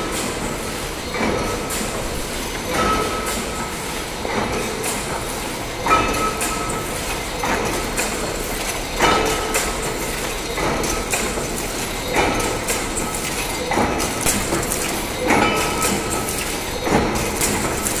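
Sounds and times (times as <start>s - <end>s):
loom metallic clatter: 0.0s - 18.0s
loud ringing clank: 2.7s - 3.6s, 14.2s - 17.0s.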